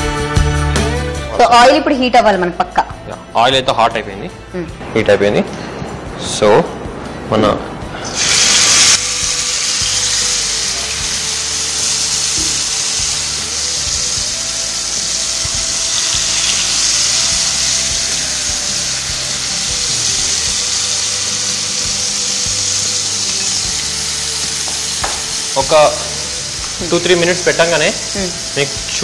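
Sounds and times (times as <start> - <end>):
background music: 0.0 - 29.0
fish sizzling in hot oil: 8.2 - 29.0.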